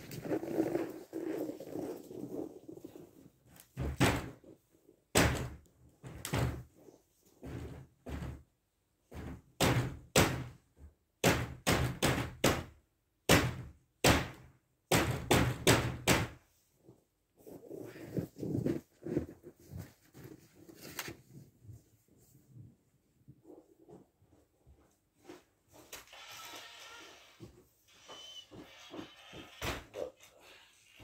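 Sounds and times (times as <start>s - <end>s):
hard knocks and bangs: 3.8s - 4.4s, 5.1s - 6.7s, 9.1s - 16.4s.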